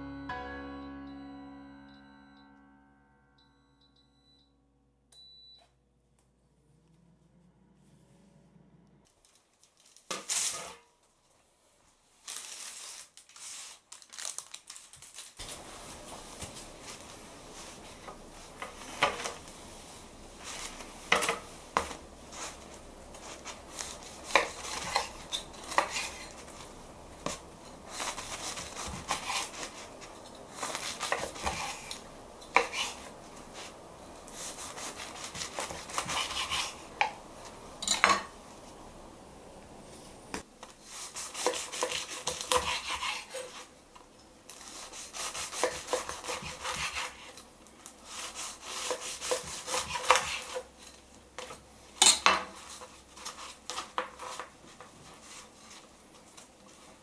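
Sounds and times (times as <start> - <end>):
knife sawing through bread: 27.9 - 29.8, 34.4 - 36.9, 40.9 - 43.7, 44.6 - 47.4, 48.1 - 50.6.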